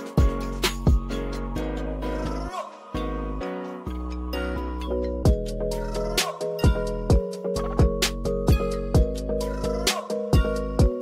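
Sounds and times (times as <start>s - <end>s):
held chords over low thumps: 5.2s - 11.0s.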